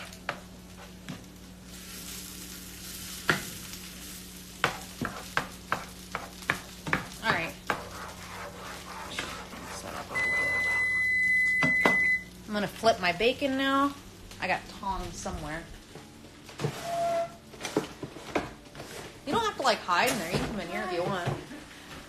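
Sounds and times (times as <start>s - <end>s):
food sizzling: 0.0s - 21.9s
spatula tapping and scraping a pan: 4.6s - 9.9s.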